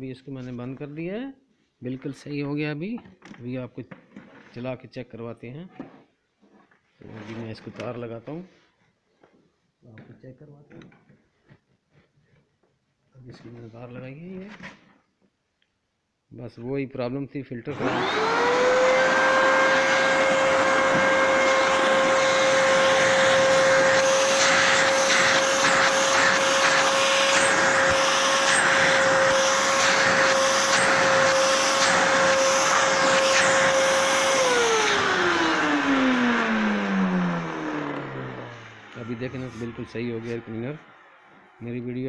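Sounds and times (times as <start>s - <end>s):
vacuum cleaner motor whine: 17.7s - 41.4s.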